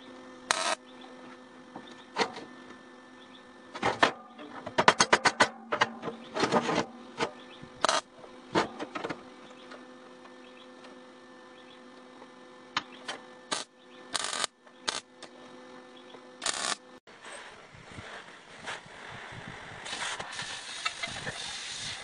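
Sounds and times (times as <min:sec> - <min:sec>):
steady electrical hum: 0:00.0 - 0:22.0
welding arc crackle: 0:00.5 - 0:00.8, 0:07.8 - 0:08.1, 0:13.5 - 0:15.1, 0:16.4 - 0:16.8, 0:19.8 - 0:22.0.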